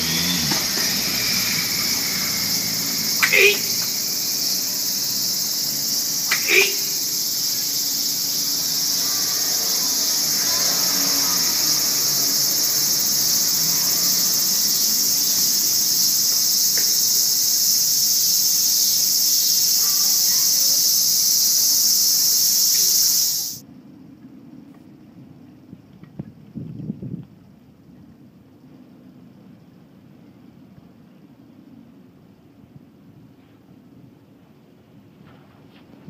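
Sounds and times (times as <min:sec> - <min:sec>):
cicadas buzzing: 0:00.0 - 0:23.7.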